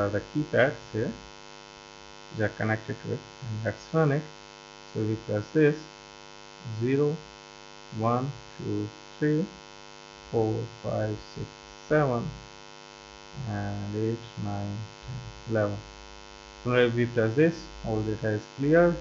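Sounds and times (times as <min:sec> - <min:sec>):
man counting aloud: 0:00.0 - 0:01.1, 0:02.4 - 0:04.2, 0:05.0 - 0:05.8, 0:06.7 - 0:07.2, 0:08.0 - 0:09.5, 0:10.4 - 0:12.4, 0:13.4 - 0:15.8, 0:16.7 - 0:19.0
electrical mains hum: 0:00.0 - 0:19.0.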